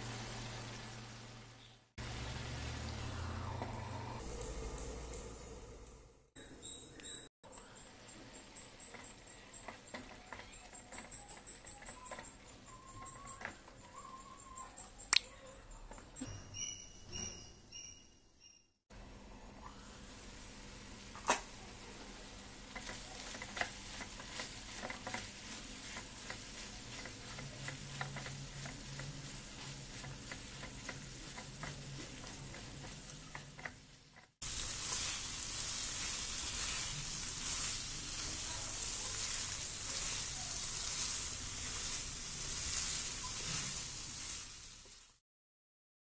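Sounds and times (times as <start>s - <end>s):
chicken sizzling in masala: 0.0s - 5.1s, 7.5s - 15.0s, 19.0s - 45.2s.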